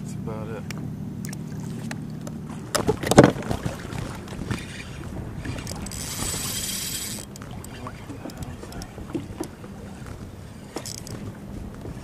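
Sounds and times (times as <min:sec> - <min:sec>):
fishing reel whirring: 0:04.5 - 0:09.0, 0:10.6 - 0:11.2.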